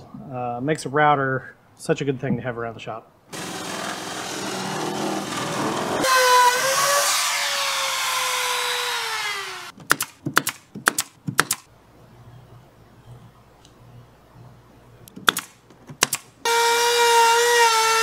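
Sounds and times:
router whining cutting plywood: 3.4s - 9.7s, 16.5s - 18.0s.

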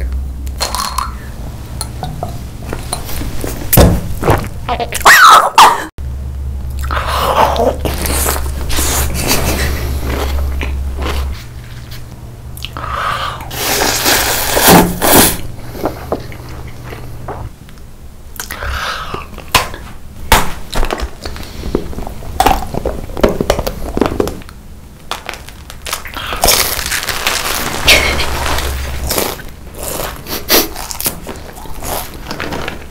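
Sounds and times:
crunching hard food: 20.7s - 32.9s.

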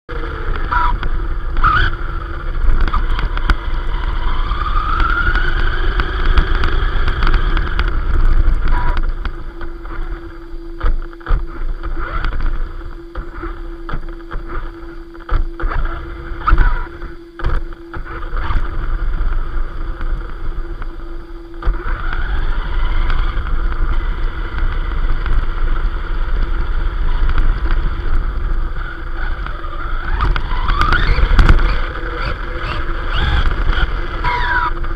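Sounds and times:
electric motor whine: 0.1s - 34.9s
wind on microphone: 0.1s - 34.9s.

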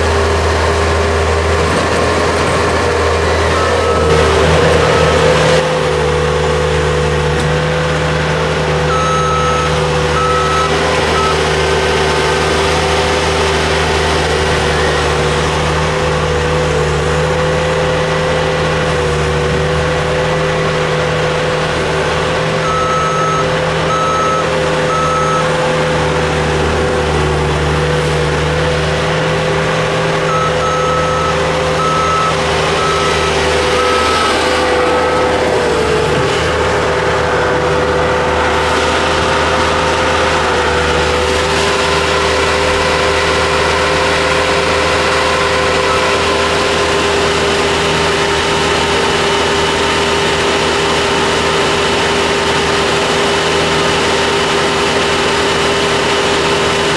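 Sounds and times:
heavy diesel engines running: 0.0s - 56.9s
reversing alarm beeping: 3.4s - 7.0s, 8.8s - 15.1s, 22.5s - 27.1s, 30.1s - 36.2s, 44.6s - 47.4s.

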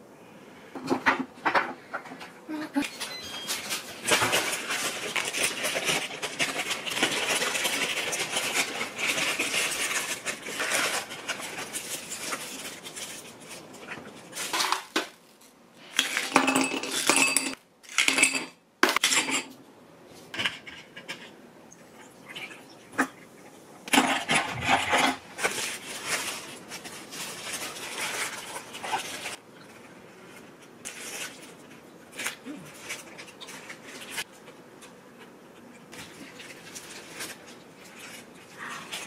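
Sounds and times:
paper bag and wrappers crinkling: 2.8s - 17.0s, 24.0s - 34.5s, 35.9s - 39.0s.

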